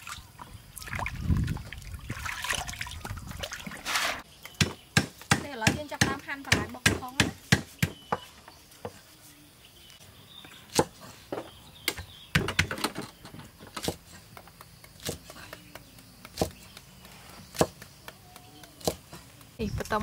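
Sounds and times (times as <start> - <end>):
knife chopping on wooden board: 13.7 - 19.1.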